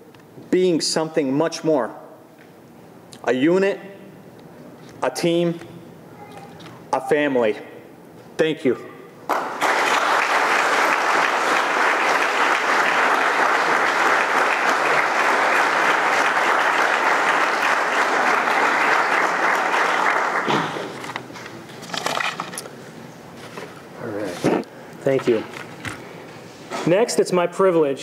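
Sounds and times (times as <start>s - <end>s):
audience applauding: 9.3s - 21.2s.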